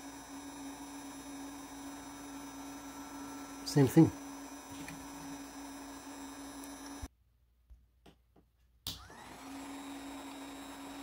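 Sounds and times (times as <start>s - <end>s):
hot air gun blower humming: 0.0s - 7.1s.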